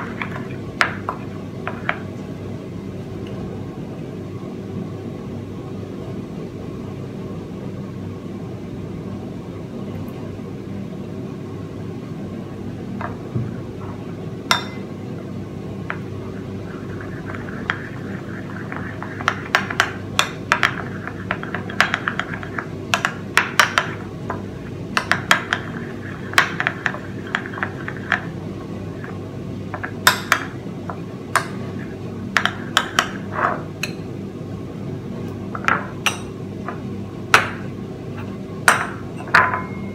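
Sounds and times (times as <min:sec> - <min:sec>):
steady low hum: 0:00.0 - 0:39.9
spoon clinking in ceramic bowl: 0:14.5 - 0:14.9.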